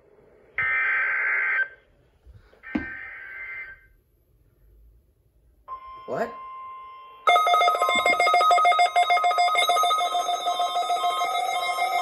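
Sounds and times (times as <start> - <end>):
steady warning alarm tone: 5.7 - 12.0.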